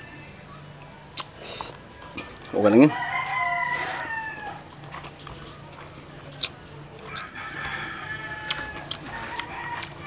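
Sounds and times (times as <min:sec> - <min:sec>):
rooster crowing: 0:00.0 - 0:00.4, 0:02.8 - 0:04.7, 0:07.0 - 0:10.0.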